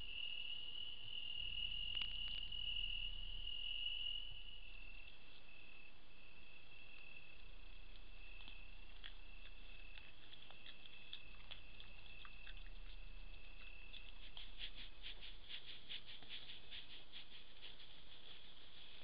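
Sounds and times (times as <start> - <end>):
insects trilling: 0.0 - 19.0
faint rustles: 7.9 - 19.0.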